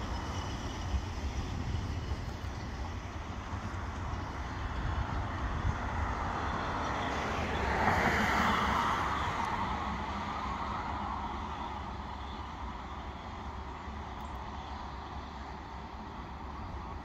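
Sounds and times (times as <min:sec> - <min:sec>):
wind rumble on microphone: 0:00.0 - 0:11.2
steam locomotive exhaust: 0:00.0 - 0:17.0.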